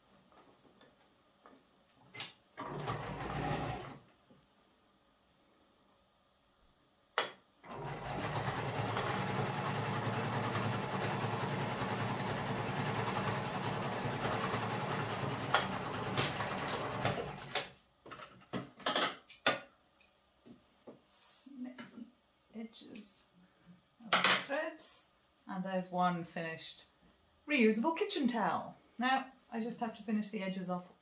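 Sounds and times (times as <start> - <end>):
electric sewing machine running: 2.6 - 4.0, 7.6 - 17.6.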